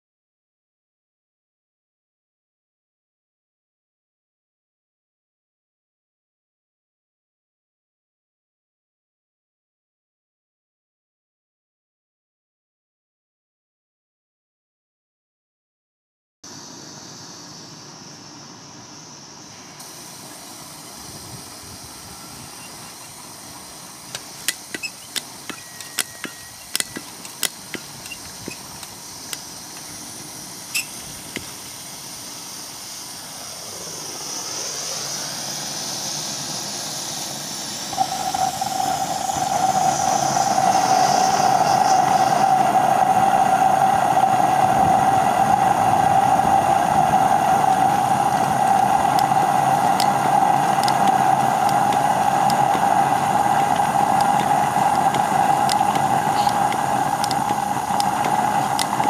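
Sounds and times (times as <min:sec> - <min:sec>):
high hiss: 0:16.5 - 0:59.0
steady humming tone: 0:16.5 - 0:59.0
sharp clicks: 0:24.1 - 0:29.9, 0:48.7 - 0:59.0.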